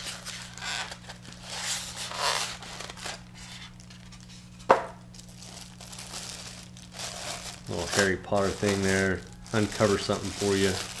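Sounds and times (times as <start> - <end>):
styrofoam rubbing and scraping: 0.0 - 4.5, 5.8 - 11.0.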